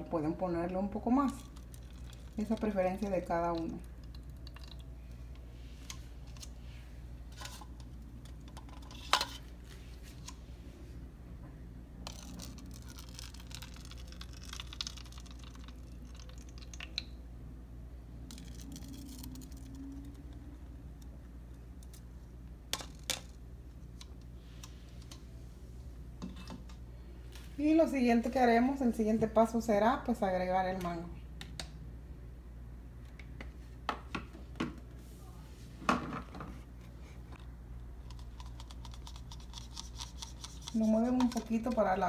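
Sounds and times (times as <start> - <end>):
low steady hum: 0.0 - 42.0
thick sauce pouring: 3.6 - 5.0, 12.1 - 17.1
plastic cups clicking on stone: 38.1 - 41.9.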